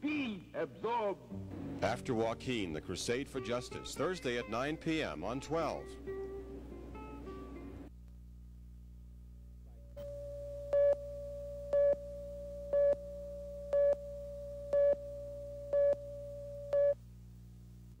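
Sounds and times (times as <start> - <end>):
low electrical hum: 0.0 - 18.0
steady electronic tone: 10.0 - 17.0
electronic beeps: 12.6 - 13.1, 13.7 - 17.0.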